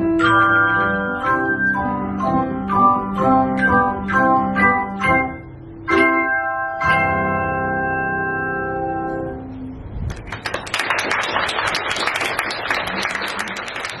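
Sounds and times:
audience applause: 10.1s - 14.0s.

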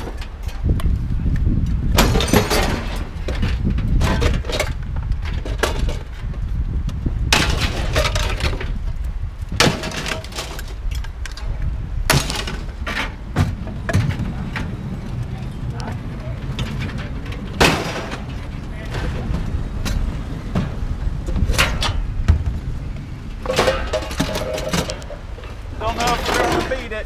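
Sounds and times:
scrap metal crashing and clanking: 2.0s - 4.8s, 7.3s - 8.7s, 9.6s - 10.8s, 16.6s - 19.3s, 23.4s - 25.2s, 25.8s - 27.0s
low engine rumble: 10.6s - 27.0s.

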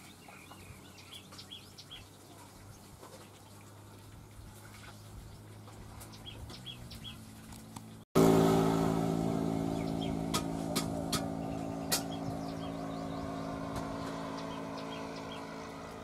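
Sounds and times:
motor engine drone: 4.2s - 16.0s
bird chirps: 6.0s - 7.2s, 9.6s - 10.3s, 11.2s - 16.0s.

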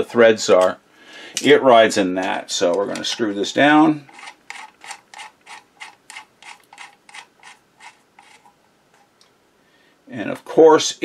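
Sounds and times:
metal ring scraping clicks: 4.0s - 8.6s.

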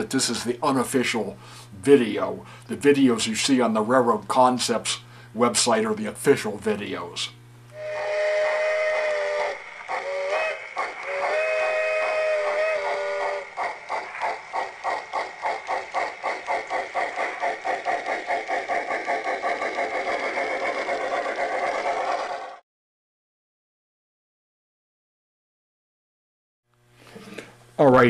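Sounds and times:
rhythmic steam chuffing: 7.8s - 22.6s.

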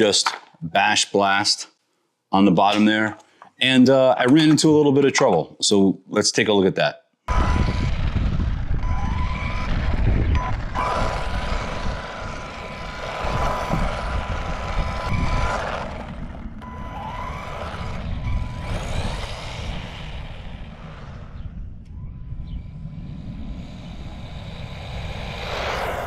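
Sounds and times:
tyres on loose gravel: 7.3s - 21.3s
electric motor whining: 7.3s - 26.0s
heavy low rumble: 7.3s - 26.0s.

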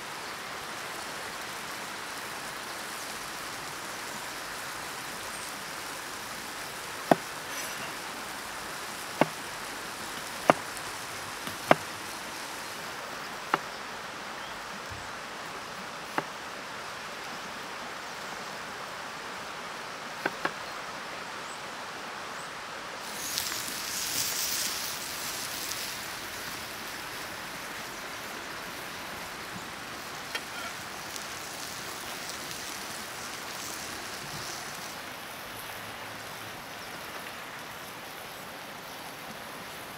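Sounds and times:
steady background hiss: 0.0s - 39.9s
knife chopping on wooden board: 11.4s - 11.8s.

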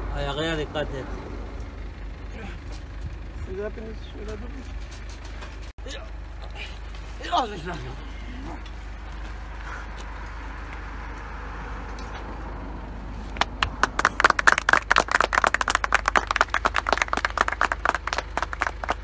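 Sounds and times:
people clapping: 13.4s - 19.0s.

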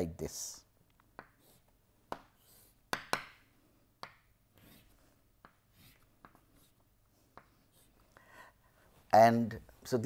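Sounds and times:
chalk tapping on blackboard: 1.1s - 8.0s
chalk scratching on blackboard: 1.2s - 3.1s, 4.0s - 8.1s.

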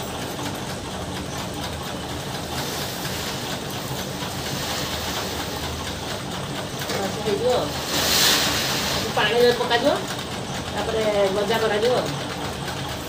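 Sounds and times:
mechanical hum and hiss: 0.0s - 13.0s
rustle of seed scooped and poured: 7.8s - 9.2s.

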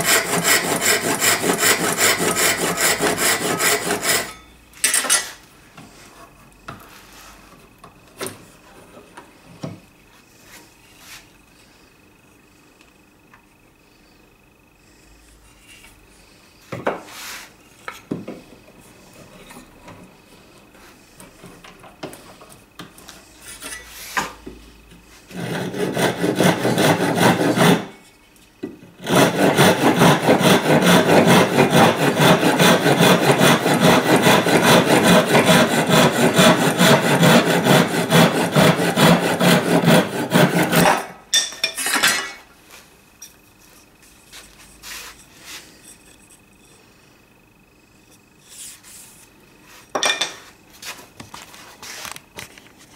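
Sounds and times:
hand saw cutting wood: 0.0s - 4.4s, 25.3s - 28.0s, 29.0s - 41.1s.

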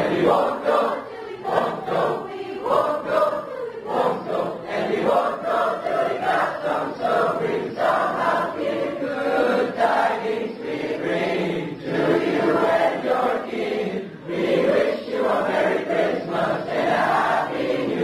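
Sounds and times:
children's choir singing: 0.0s - 18.0s.

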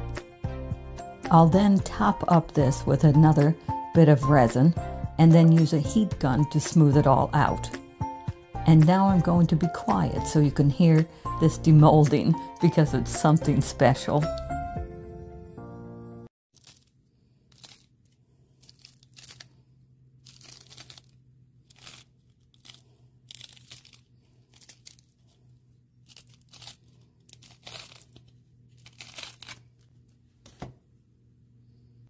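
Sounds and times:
mould crackling and crinkling: 16.5s - 19.6s, 20.2s - 30.2s.

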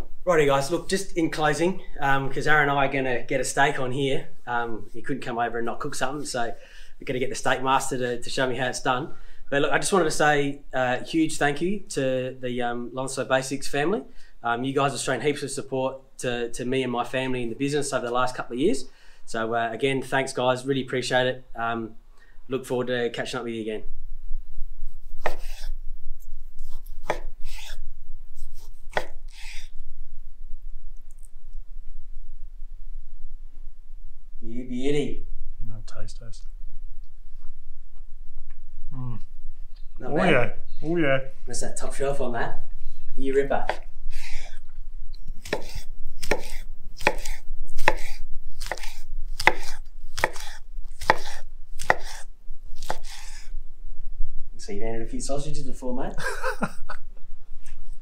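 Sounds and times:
knife scraping on board: 25.2s - 25.8s, 26.6s - 27.8s, 28.4s - 29.7s, 44.1s - 44.6s, 45.4s - 53.5s.

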